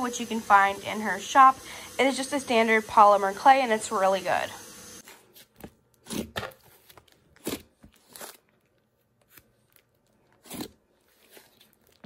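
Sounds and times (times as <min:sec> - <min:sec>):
slime squishing: 0:05.3 - 0:12.0.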